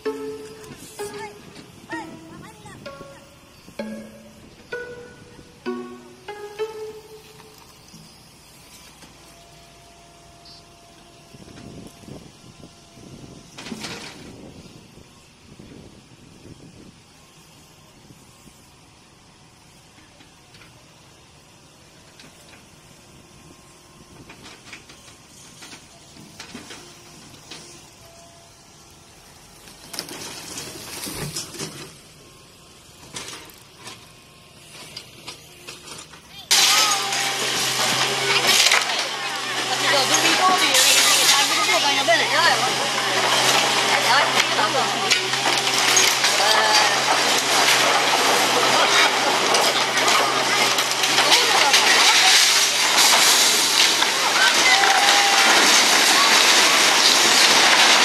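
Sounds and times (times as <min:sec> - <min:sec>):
excavator engine running: 0:00.0 - 0:18.0, 0:18.7 - 0:58.0
concrete tank crashing to ground: 0:36.5 - 0:58.0
debris settling knocks: 0:36.5 - 0:58.0.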